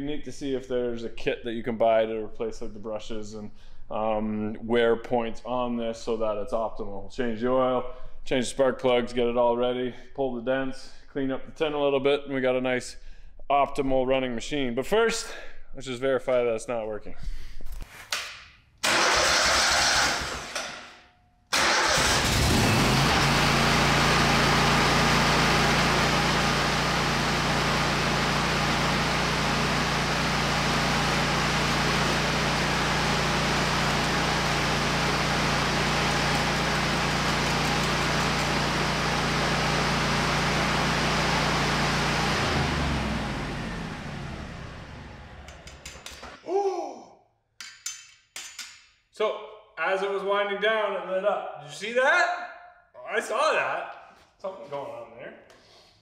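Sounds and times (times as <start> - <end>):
engine spinning down: 18.8 - 20.6, 21.6 - 46.4
gasoline engine cranking and running: 18.8 - 20.7, 21.5 - 46.3.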